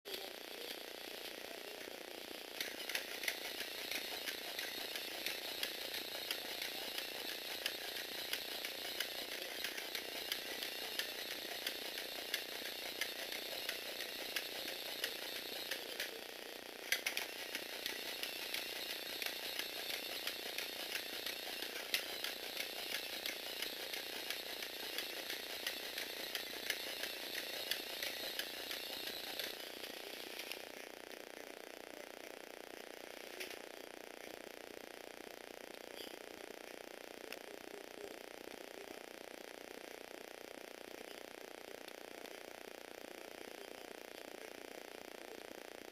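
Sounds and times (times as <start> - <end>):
toy motor whirring: 0.1 - 31.0
plastic gears clicking and rattling: 2.4 - 30.9.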